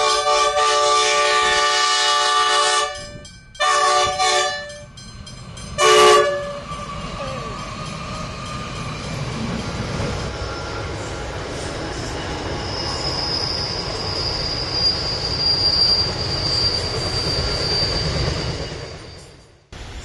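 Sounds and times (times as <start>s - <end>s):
locomotive horn blasts: 0.0s - 4.9s, 5.8s - 6.7s
train rumbling past: 0.0s - 20.0s.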